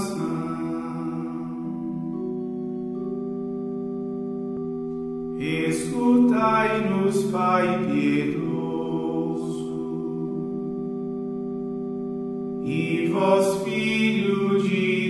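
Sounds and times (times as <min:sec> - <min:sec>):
person singing a hymn: 0:00.0 - 0:03.0, 0:05.3 - 0:11.4, 0:12.6 - 0:15.0
held chord: 0:00.0 - 0:15.0.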